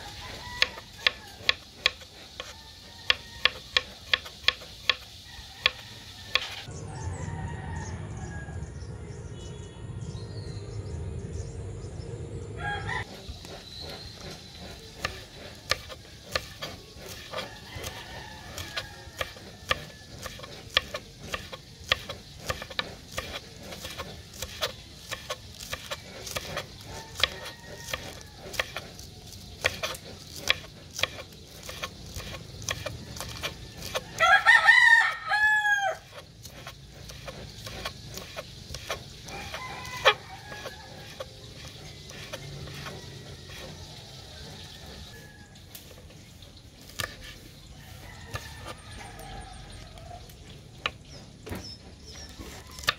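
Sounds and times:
rooster crowing: 0.0s - 4.1s, 5.1s - 8.8s, 12.6s - 13.2s, 17.1s - 21.0s, 26.8s - 29.0s, 32.8s - 36.3s, 39.2s - 46.0s, 47.7s - 50.4s
knife chopping on wooden board: 0.0s - 6.7s, 13.4s - 34.2s, 36.0s - 43.9s, 46.9s - 47.4s, 48.3s - 48.9s, 52.4s - 52.9s.

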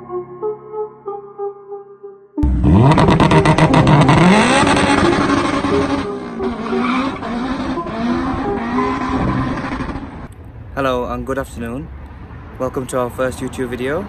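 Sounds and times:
car engine revving: 2.4s - 10.3s.

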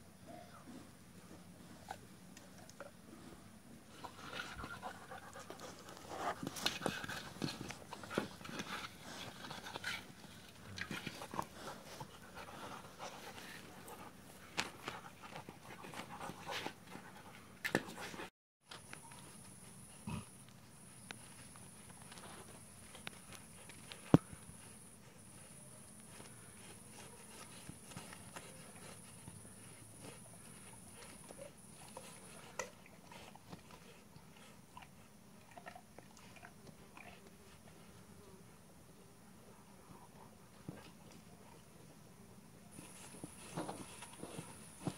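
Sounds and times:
dogs chewing a toy ball: 1.4s - 18.2s, 19.0s - 38.0s, 42.7s - 44.9s
puppy panting: 4.0s - 10.4s, 22.8s - 35.2s.

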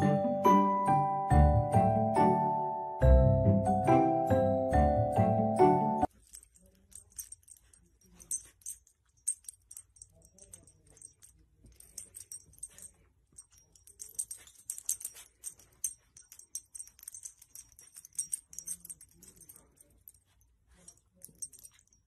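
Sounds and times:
collar bell jingling: 6.0s - 22.0s.

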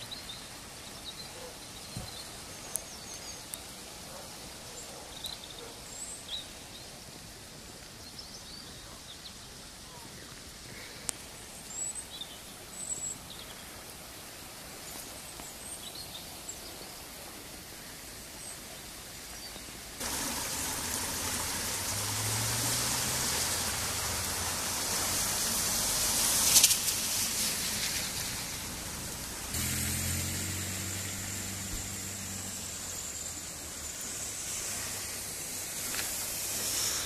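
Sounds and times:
rushing river: 0.0s - 37.0s.

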